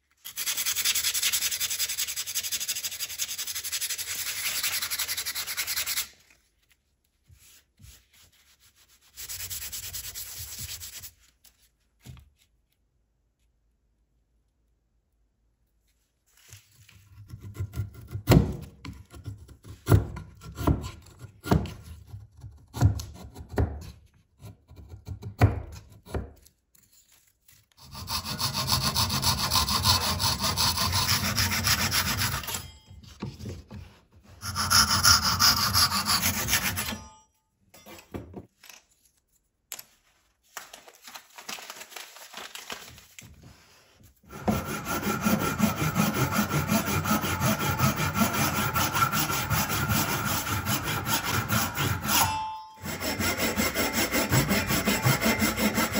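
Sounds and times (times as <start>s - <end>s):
hand saw cutting wood: 27.8s - 32.8s, 34.3s - 37.1s, 44.2s - 55.9s.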